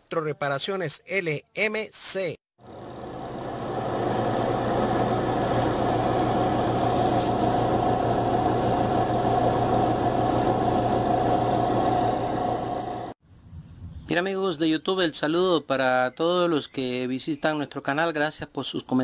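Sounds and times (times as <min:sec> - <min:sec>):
steady mechanical drone: 0:02.6 - 0:13.2.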